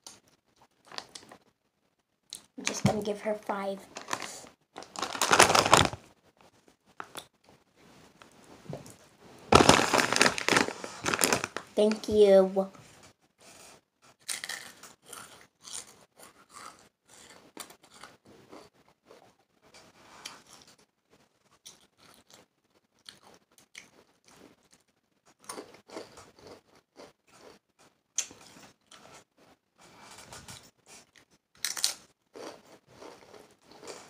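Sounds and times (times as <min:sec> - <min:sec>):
chewing crisp chips: 0:03.9 - 0:06.0, 0:09.6 - 0:11.7, 0:14.1 - 0:19.3, 0:20.2 - 0:29.3, 0:30.6 - 0:34.0.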